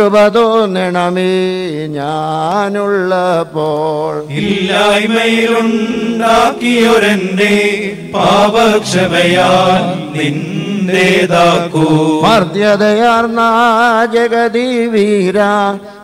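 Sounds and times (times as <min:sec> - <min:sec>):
voices chanting a hymn: 0:03.6 - 0:15.9
steady held low note: 0:04.3 - 0:11.8.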